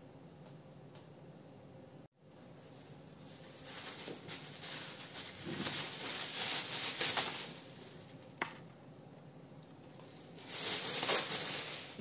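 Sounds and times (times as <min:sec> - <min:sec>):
plastic bag rustling: 0:02.4 - 0:08.6, 0:10.0 - 0:12.0.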